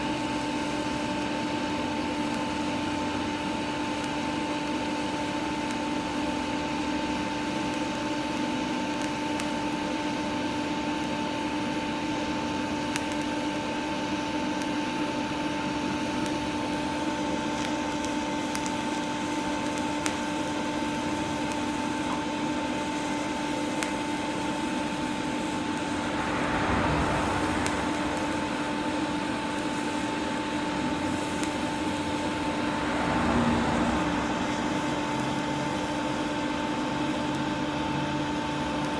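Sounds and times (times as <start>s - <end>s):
welding arc hum: 0.0s - 38.9s
welding hiss: 0.0s - 38.9s
faint crackles: 17.6s - 36.3s.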